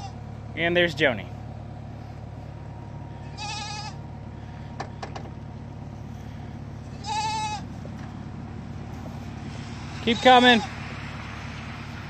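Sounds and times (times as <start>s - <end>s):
goats bleating: 0.0s - 0.2s, 3.1s - 4.1s, 6.4s - 7.9s, 9.8s - 10.8s
steady low hum: 0.0s - 12.0s.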